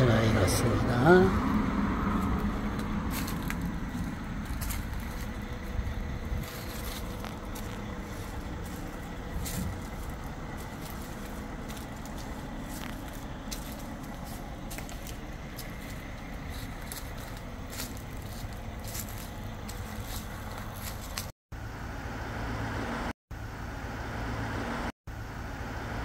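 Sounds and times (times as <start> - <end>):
low outdoor rumble: 0.0 - 26.0.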